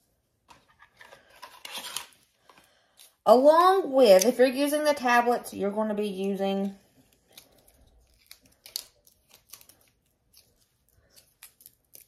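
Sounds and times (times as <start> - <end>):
packaging crinkling: 7.1 - 12.0.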